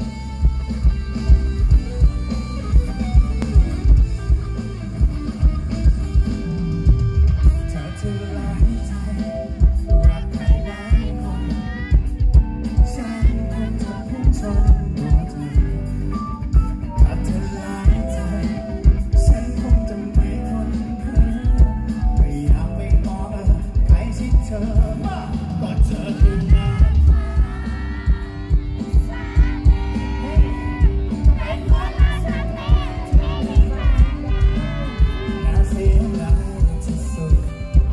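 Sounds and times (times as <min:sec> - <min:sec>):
live pop-rock band: 0:00.0 - 0:37.9
man singing: 0:05.4 - 0:37.9
kick drum beat: 0:26.2 - 0:37.9.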